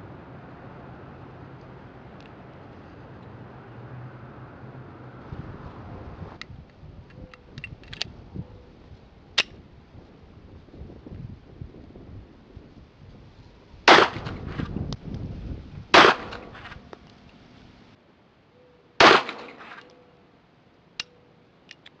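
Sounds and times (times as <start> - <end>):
sharp click: 9.4 - 9.6
pistol shots: 13.9 - 14.4, 16.0 - 16.7, 19.0 - 19.8.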